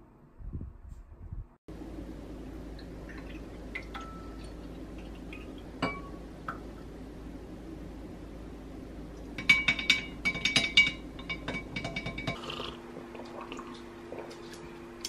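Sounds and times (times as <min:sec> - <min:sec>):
low steady hum: 0:00.0 - 0:15.0
glass clinking: 0:03.8 - 0:04.6, 0:05.4 - 0:06.6, 0:09.4 - 0:12.5.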